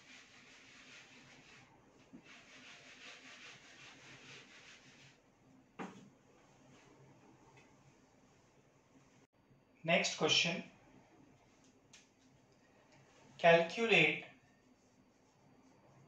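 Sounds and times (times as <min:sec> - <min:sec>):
duster rubbing on whiteboard: 0:00.0 - 0:05.2, 0:14.4 - 0:16.0.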